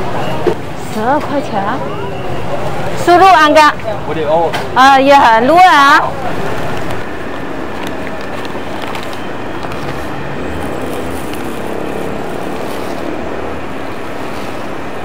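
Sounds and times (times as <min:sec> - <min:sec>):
steady background rumble: 0:00.0 - 0:15.0
paper and plastic bag crinkling: 0:07.7 - 0:13.2.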